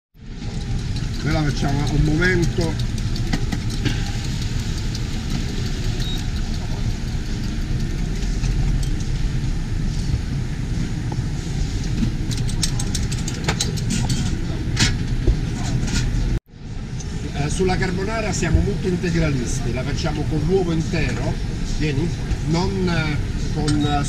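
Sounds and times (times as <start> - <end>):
extractor hood and burner rumble: 0.2 - 24.0
utensils clicking on metal: 0.4 - 9.2, 12.3 - 14.3.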